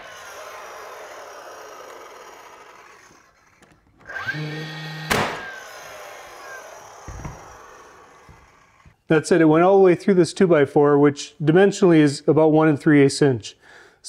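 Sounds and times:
nailer motor whirring: 0.0s - 9.0s
nailer firing sharp crack: 5.0s - 5.6s.

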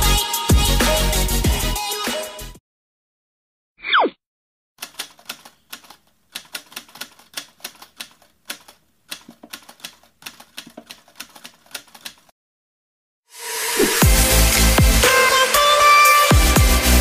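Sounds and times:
typewriter keystroke clicks: 4.8s - 12.3s.

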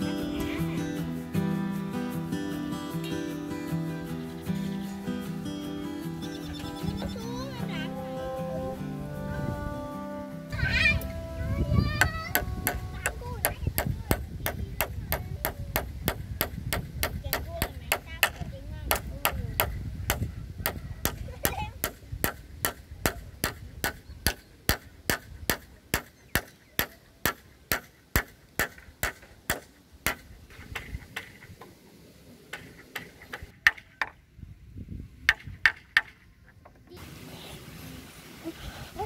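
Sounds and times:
hammer striking nails into wood: 12.4s - 21.2s, 21.8s - 31.5s.

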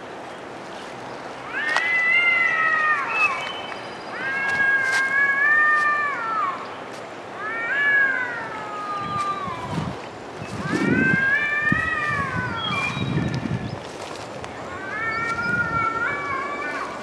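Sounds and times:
cats yowling: 1.4s - 3.5s, 4.1s - 6.6s, 7.4s - 13.4s, 14.6s - 17.0s.

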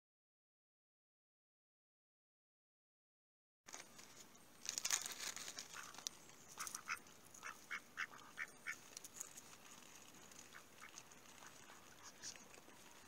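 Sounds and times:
ducks quacking: 5.6s - 8.9s, 10.4s - 13.0s.

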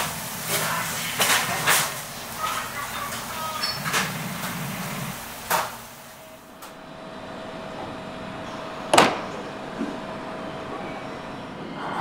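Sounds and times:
meat sizzling on hot plate: 0.0s - 6.1s
train humming at platform: 0.0s - 12.0s.

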